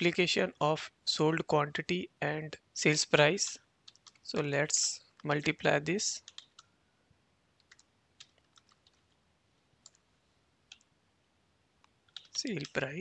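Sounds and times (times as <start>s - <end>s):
computer keyboard keystrokes: 3.8s - 4.5s, 6.2s - 6.7s, 7.6s - 9.2s, 10.7s - 10.9s, 12.1s - 12.8s.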